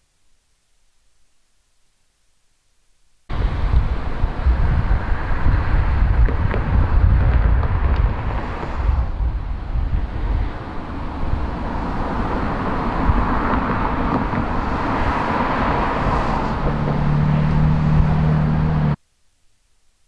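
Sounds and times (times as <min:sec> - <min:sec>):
cars passing: 0:03.3 - 0:19.0
wind rumble on microphone: 0:03.3 - 0:19.0.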